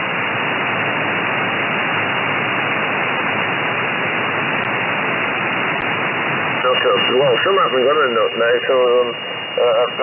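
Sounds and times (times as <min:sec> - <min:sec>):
radio static hiss: 0:00.0 - 0:10.0.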